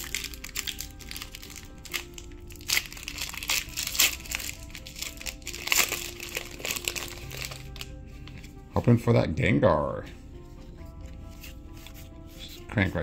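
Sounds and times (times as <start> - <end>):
foil wrapper crinkling: 0.0 - 8.0
faint background music: 0.0 - 13.0.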